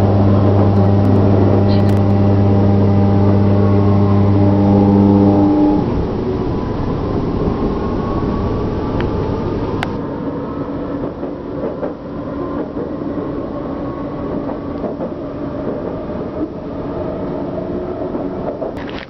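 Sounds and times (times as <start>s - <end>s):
steady mechanical rumble: 0.0s - 10.0s.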